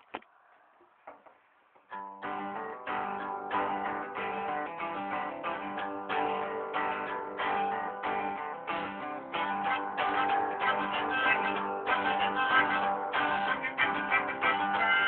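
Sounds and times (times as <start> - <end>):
acoustic guitar strumming chords: 1.9 - 15.0.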